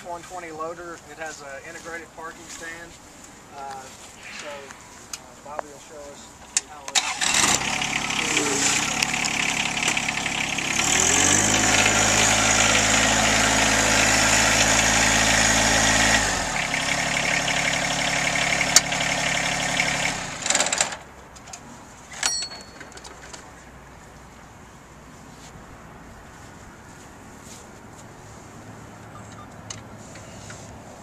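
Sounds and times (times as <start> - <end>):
tractor diesel engine running: 6.9 - 21.1.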